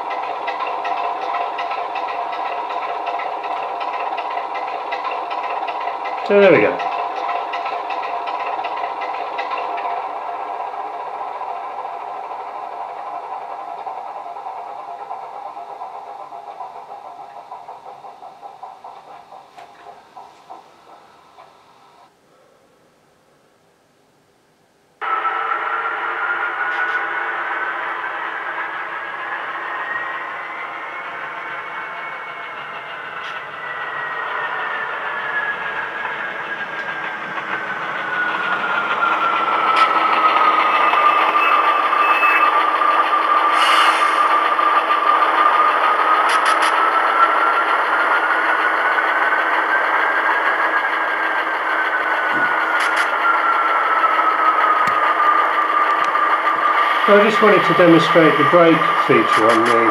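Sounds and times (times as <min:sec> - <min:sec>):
model diesel engine through speaker: 0:00.0 - 0:10.7, 0:50.4 - 0:59.9
model train diesel engine sound: 0:00.0 - 0:22.2, 0:25.0 - 0:59.9.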